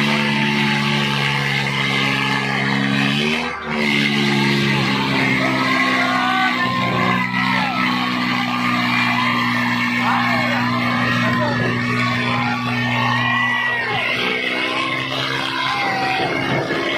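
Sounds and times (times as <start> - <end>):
crowd shouting: 0.0 - 16.9
tractor engines labouring: 0.0 - 16.9.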